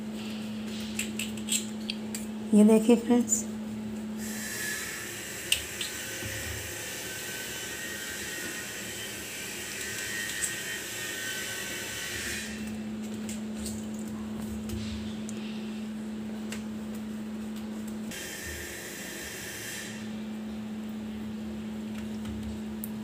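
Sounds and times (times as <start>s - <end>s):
low steady hum: 0.0s - 4.3s, 11.8s - 18.7s.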